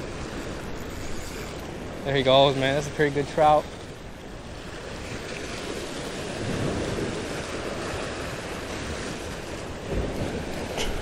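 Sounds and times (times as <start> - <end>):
surf breaking against rocks: 0.0 - 11.0
wind buffeting microphone: 0.0 - 11.0.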